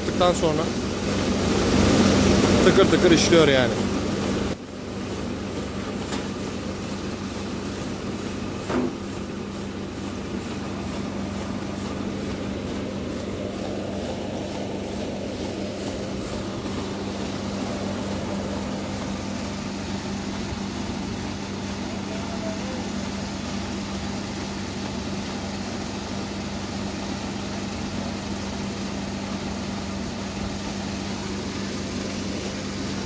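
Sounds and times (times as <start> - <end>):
machine humming and blowing: 0.0 - 33.0
brief knock: 8.7 - 9.0.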